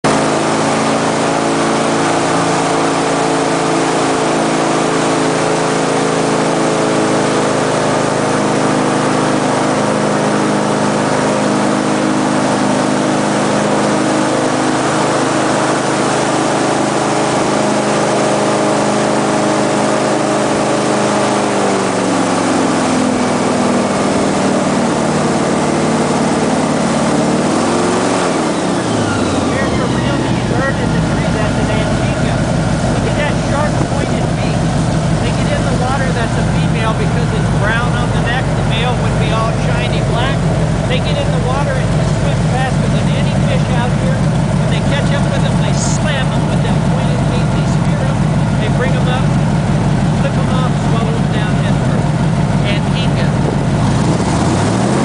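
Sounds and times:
airboat engine and propeller: 0.0s - 55.0s
rush of wind: 27.5s - 35.7s, 51.8s - 55.0s.

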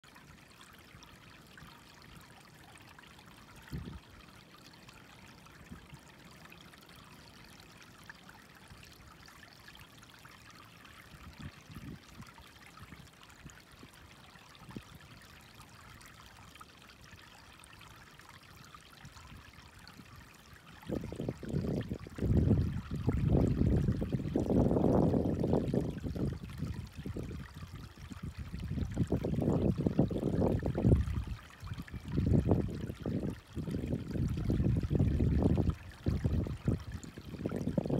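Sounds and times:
water trickling over rock: 0.0s - 37.9s.

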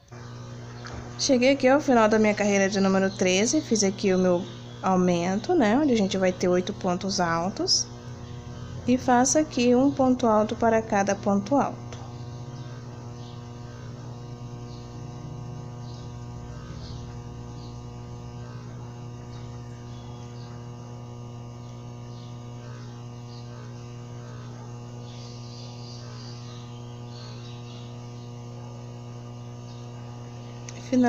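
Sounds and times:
low electrical hum: 0.0s - 31.0s.

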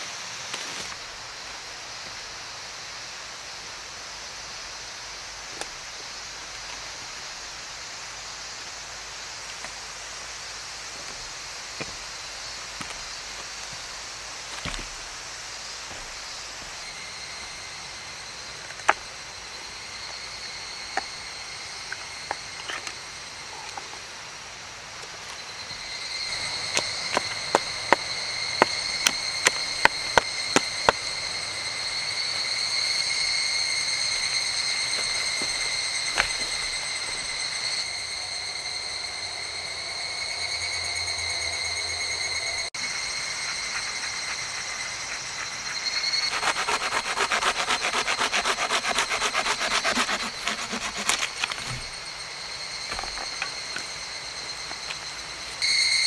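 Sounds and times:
high insect drone: 0.0s - 56.0s
hand saw cutting wood: 46.0s - 52.0s.

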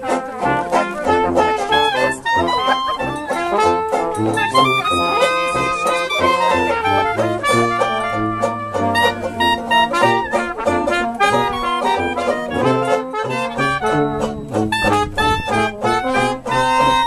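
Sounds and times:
band playing lively jazz: 0.0s - 17.0s.

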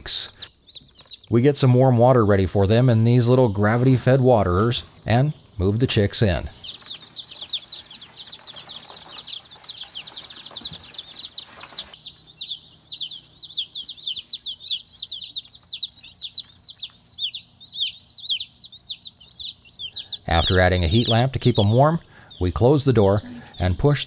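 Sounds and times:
chicks peeping: 0.0s - 24.0s
rustling in wood shavings: 6.6s - 12.5s.

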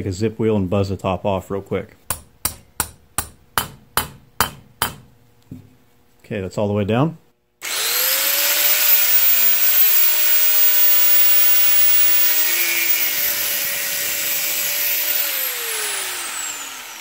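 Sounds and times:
angle grinder grinding steel: 7.6s - 17.0s.

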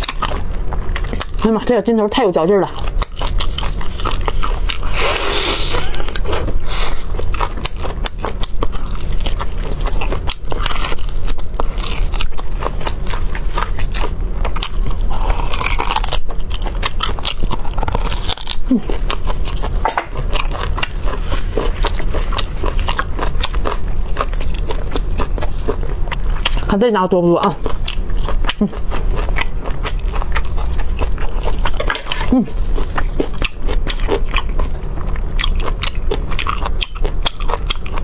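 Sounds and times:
close chewing and mouth smacks: 0.0s - 1.8s, 2.7s - 26.7s, 27.5s - 38.0s
sucking from bone: 4.6s - 7.2s.

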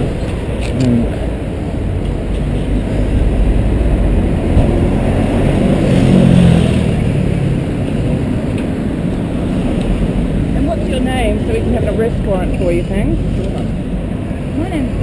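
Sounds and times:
road traffic rumble: 0.0s - 15.0s
vehicle passing: 0.0s - 15.0s.

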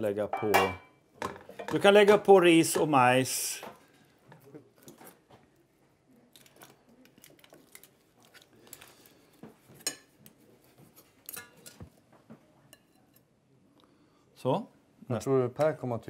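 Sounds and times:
spoon clinking on plates: 0.4s - 1.0s, 9.8s - 10.2s, 11.2s - 11.9s.

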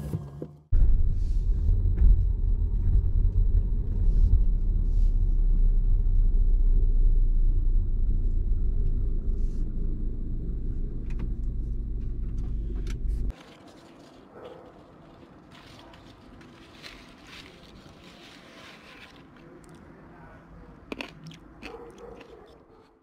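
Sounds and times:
car engine and tyres rumbling: 0.0s - 13.4s.

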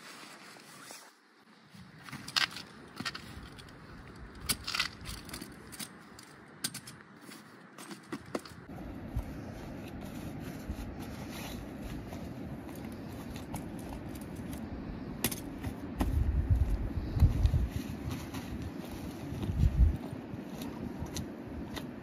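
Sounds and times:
wind buffeting microphone: 14.1s - 21.8s.

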